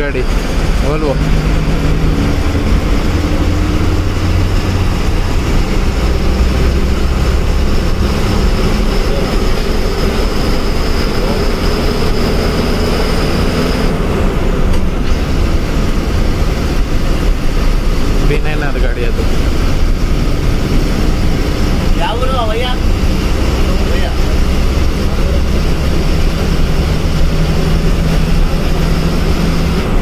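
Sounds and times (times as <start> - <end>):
bus diesel engine rumble: 0.0 - 30.0
road noise: 0.0 - 30.0.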